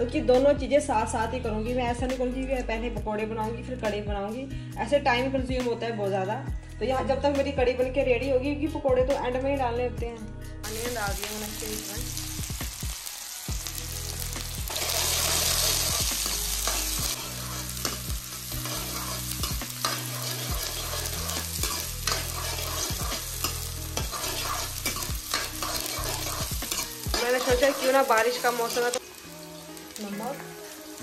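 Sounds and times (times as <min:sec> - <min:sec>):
onions sizzling in hot oil: 0:10.6 - 0:31.0
spoon scraping a metal pan: 0:14.7 - 0:29.0.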